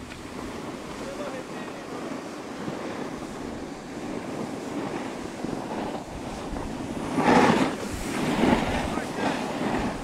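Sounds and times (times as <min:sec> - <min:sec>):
snowboard sliding over snow: 0:00.0 - 0:10.0
wind on microphone: 0:00.0 - 0:10.0.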